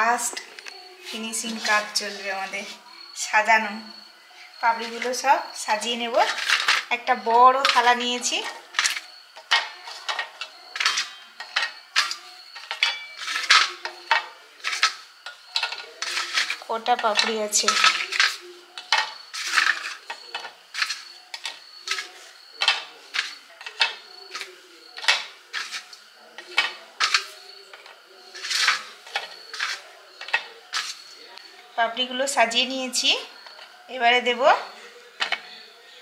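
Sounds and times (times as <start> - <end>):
crisps clicking on steel plate: 6.1 - 31.5, 35.2 - 35.6
scrape on plate: 15.7 - 16.6, 28.3 - 31.1.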